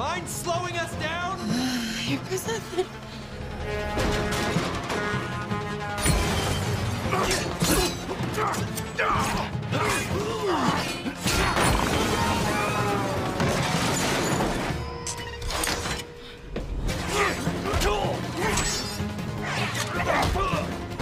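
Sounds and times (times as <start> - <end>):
film music: 0.0 - 21.0
glass shattering: 6.0 - 8.1, 11.3 - 16.0.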